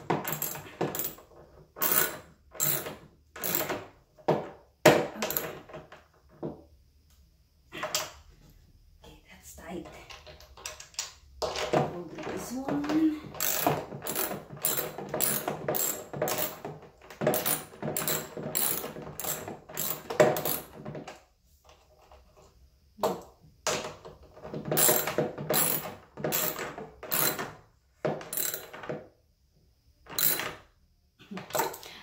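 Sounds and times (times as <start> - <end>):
ratchet wrench clicking: 1.8 - 2.8, 13.4 - 16.5, 28.3 - 28.7.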